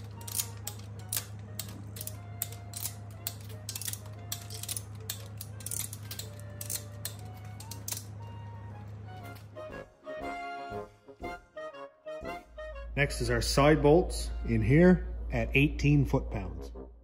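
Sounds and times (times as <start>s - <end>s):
soft background music: 0.0s - 17.0s
torque wrench ratchet clicking: 0.2s - 7.2s
low hum: 12.4s - 17.0s.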